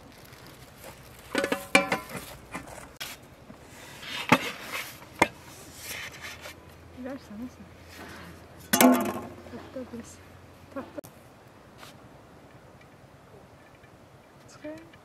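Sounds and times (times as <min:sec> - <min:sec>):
metal lid clanging: 0:01.3 - 0:02.2, 0:08.7 - 0:09.4.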